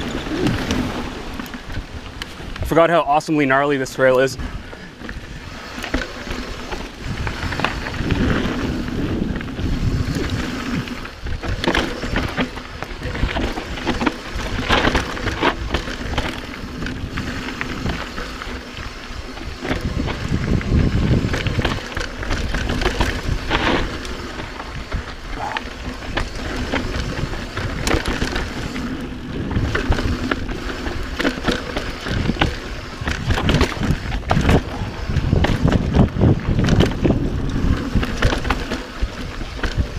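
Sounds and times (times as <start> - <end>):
bike knocking and rattling: 0.0 - 39.9
bike tyres rolling over dirt: 0.0 - 39.9
wind rumble on microphone: 0.0 - 39.9.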